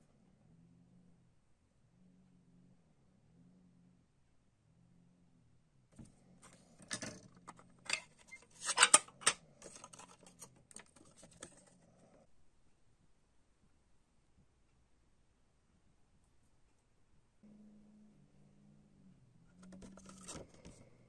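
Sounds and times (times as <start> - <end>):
plastic case clicks and rattles: 6.8 - 11.6
paper rustling: 7.9 - 11.7, 19.7 - 20.9.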